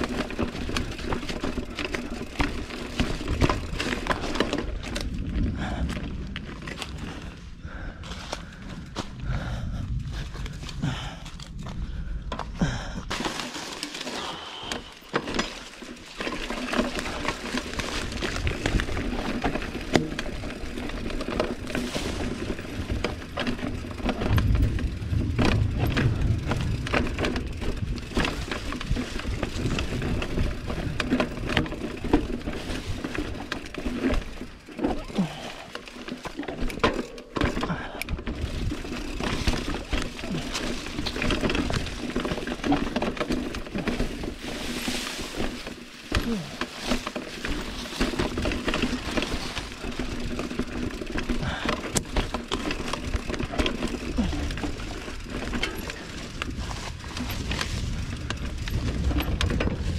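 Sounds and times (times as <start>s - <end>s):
bike chain and frame rattling: 0.0s - 59.9s
tyres crunching over dirt and stones: 0.0s - 59.9s
wind rumble on microphone: 3.0s - 13.1s, 17.7s - 34.2s, 37.7s - 44.4s, 48.2s - 59.9s.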